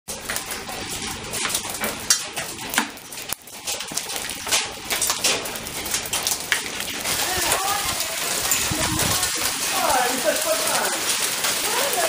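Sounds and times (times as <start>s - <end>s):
small stones raining onto stone tiles: 0.1s - 12.0s.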